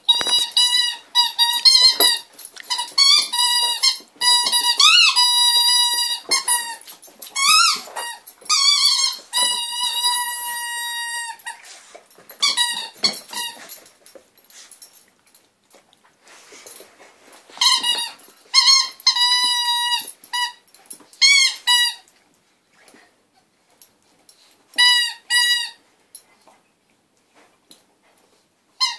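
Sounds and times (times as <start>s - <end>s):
squeaky toy squeaking: 0.0s - 11.6s, 12.4s - 13.7s, 17.6s - 20.6s, 21.2s - 22.0s, 24.8s - 25.8s.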